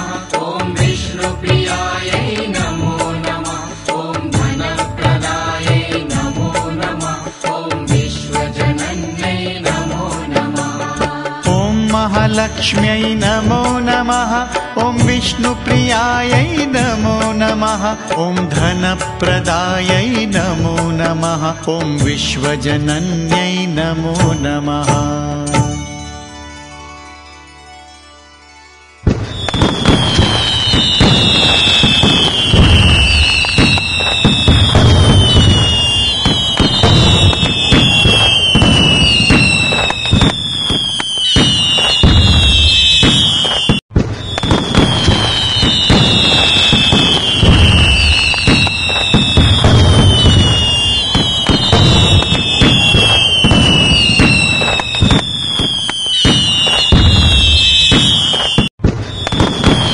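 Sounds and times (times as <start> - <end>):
fireworks crackling and banging: 0.0 - 25.0, 29.0 - 59.9
falling firework whistle: 29.0 - 59.9.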